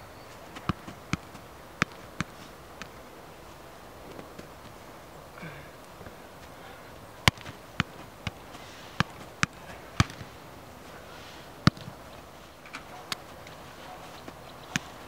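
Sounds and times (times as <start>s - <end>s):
soccer ball thuds: 0.5s - 3.0s, 7.2s - 10.4s, 11.6s - 12.0s, 14.3s - 15.0s.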